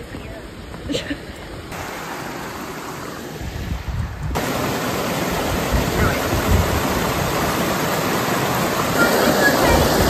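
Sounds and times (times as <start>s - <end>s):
water rushing over rocks: 0.0s - 10.0s
wind rumbling on microphone: 3.2s - 10.0s.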